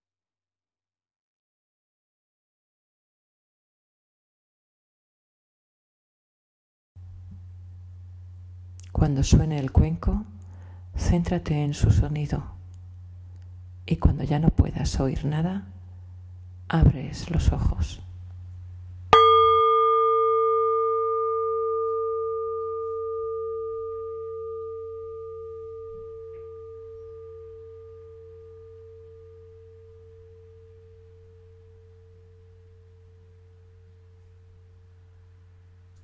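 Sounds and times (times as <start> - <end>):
low steady hum: 7.0 - 36.0
singing bowl ringing: 19.1 - 35.8.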